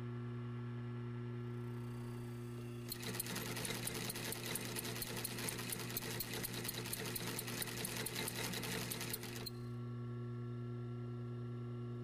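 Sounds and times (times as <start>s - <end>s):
sewing machine motor humming: 2.9s - 9.6s
sewing machine needle clatter: 2.9s - 9.6s.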